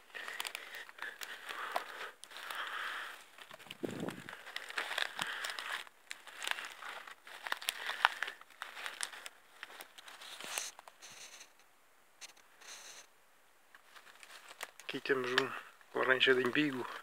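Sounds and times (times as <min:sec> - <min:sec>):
footsteps crunching through dry grass: 0:00.0 - 0:11.4, 0:13.8 - 0:17.0.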